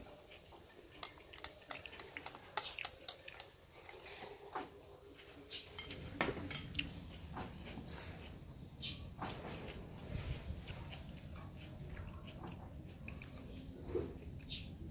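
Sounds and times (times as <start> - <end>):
utensils clinking against a bowl: 5.6 - 6.9.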